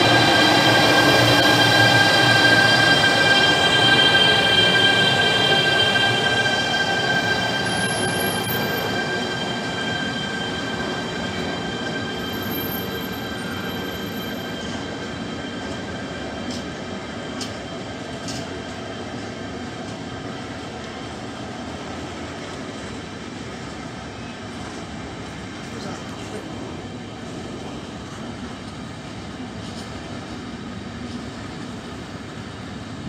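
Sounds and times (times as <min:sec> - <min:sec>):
locomotive high whine: 0:00.0 - 0:19.7
train wheels rumbling: 0:00.0 - 0:33.0.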